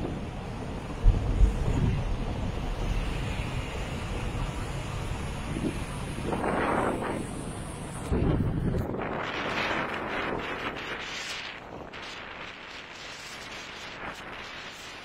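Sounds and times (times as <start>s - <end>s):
strong wind around vehicle: 0.0s - 15.0s.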